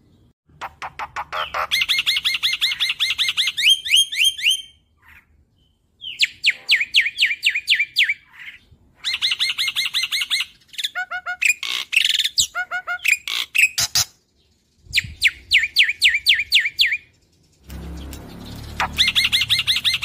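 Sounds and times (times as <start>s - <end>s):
starling singing: 0.6s - 5.2s, 15.0s - 20.0s.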